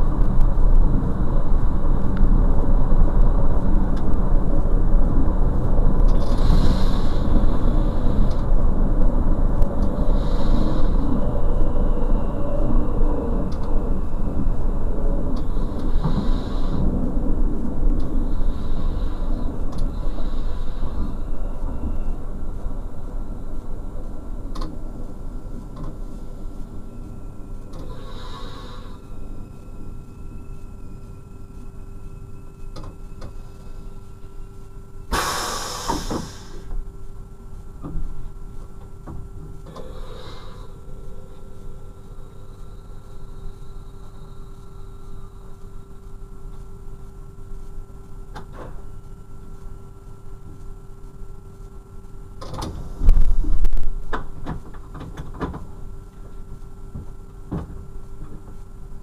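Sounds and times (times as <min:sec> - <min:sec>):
diesel railcar humming: 0:00.0 - 0:59.0
compressed air hiss: 0:27.9 - 0:29.0, 0:35.1 - 0:36.7, 0:39.9 - 0:40.8.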